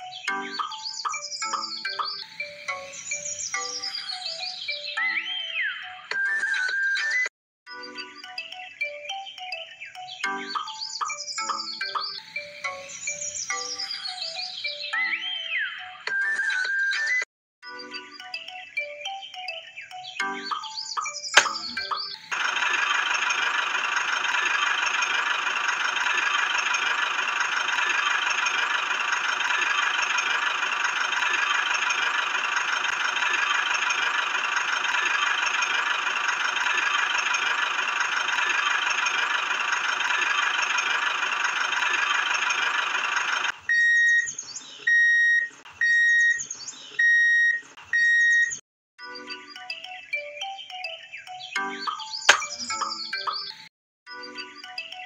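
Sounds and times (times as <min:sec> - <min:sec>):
short electronic beeps: 0:47.0 - 0:48.6.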